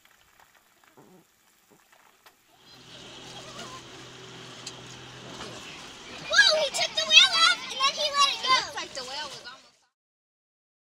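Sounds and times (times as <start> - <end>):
steady hiss with low hum: 0.0 - 9.6
hens clucking: 2.7 - 9.5.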